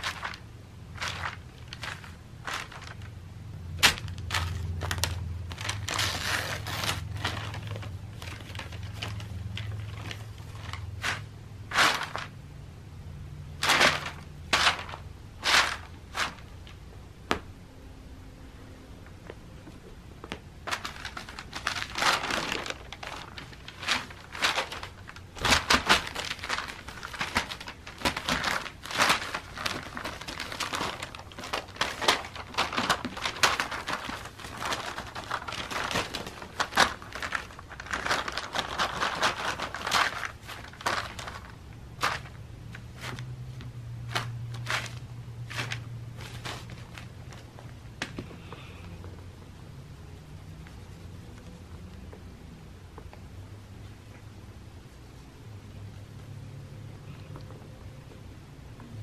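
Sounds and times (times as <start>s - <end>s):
paper flyers rustling and crinkling: 0.0s - 12.4s, 13.5s - 16.8s, 19.2s - 49.3s.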